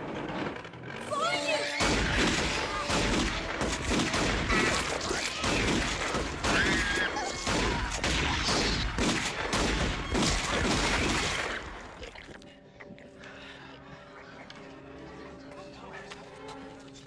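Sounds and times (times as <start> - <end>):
wavering high cry: 1.0 - 3.1
crashes and impacts: 1.8 - 12.0
rapid gunfire: 1.8 - 12.0.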